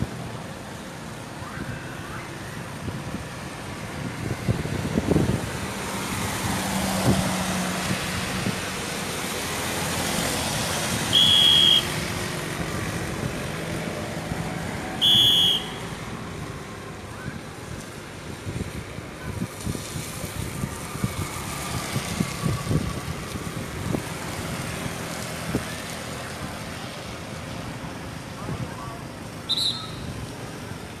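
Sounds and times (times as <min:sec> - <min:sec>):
tyres hissing on wet road: 0:00.0 - 0:31.0
vehicle engines humming: 0:00.0 - 0:31.0
traffic whistle blast: 0:11.1 - 0:12.0, 0:15.0 - 0:15.9, 0:29.4 - 0:30.1.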